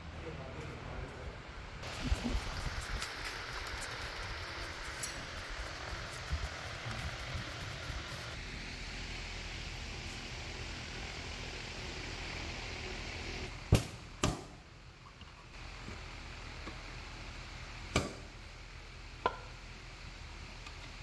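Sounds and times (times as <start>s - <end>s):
steady hiss: 1.8s - 14.6s.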